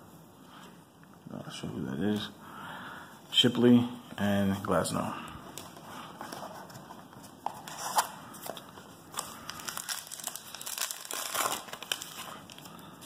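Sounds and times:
wrapper crinkling and tearing: 0:07.8 - 0:12.8.

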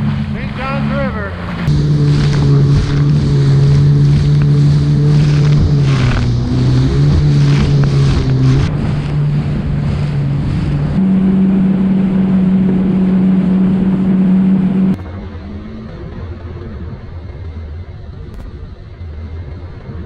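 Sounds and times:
water spray: 0:00.0 - 0:12.2
hull slapping waves: 0:00.0 - 0:20.0
jet ski engine running: 0:00.0 - 0:20.0
wind on microphone: 0:00.0 - 0:20.0.

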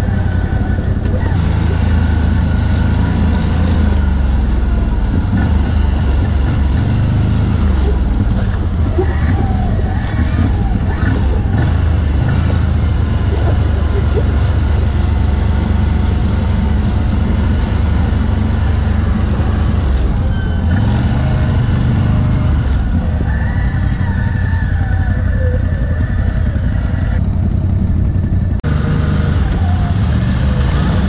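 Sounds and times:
atv engine revving: 0:00.0 - 0:31.0.

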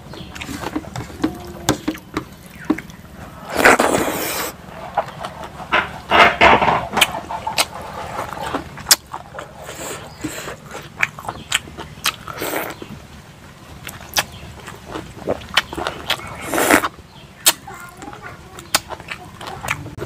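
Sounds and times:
wet chewing and lip smacks: 0:08.8 - 0:12.9, 0:13.8 - 0:17.6.

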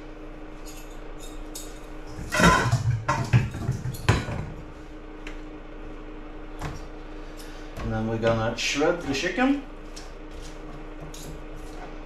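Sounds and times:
metal bowl and forks clattering: 0:00.7 - 0:04.4.

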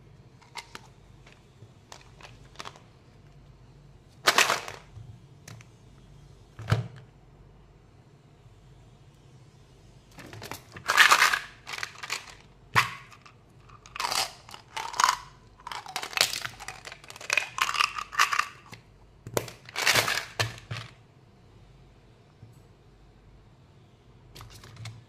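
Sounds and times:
plastic bottle crinkling: 0:10.2 - 0:18.8.

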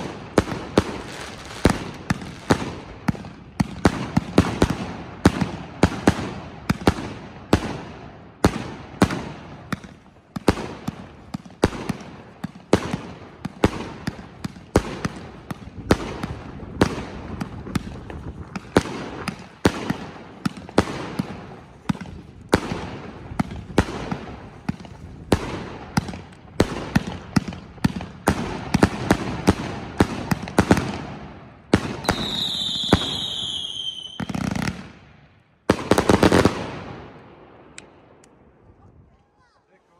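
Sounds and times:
firework stars crackling: 0:00.0 - 0:39.8
falling firework whistle: 0:32.0 - 0:34.4.

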